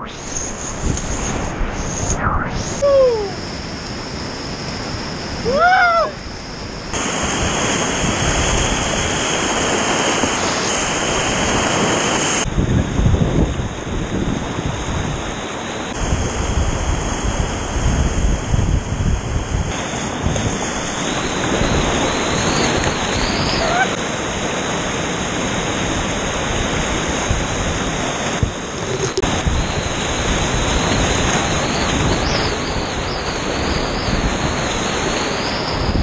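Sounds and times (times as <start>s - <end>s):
person calling out: 2.8s - 3.4s, 5.4s - 6.2s, 23.6s - 24.0s
rushing whitewater: 2.8s - 12.5s, 19.7s - 36.0s.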